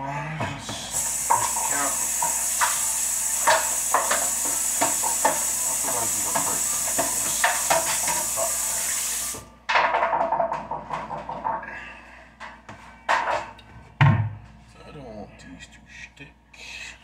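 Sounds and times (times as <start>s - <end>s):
tap water running: 0.8s - 9.5s.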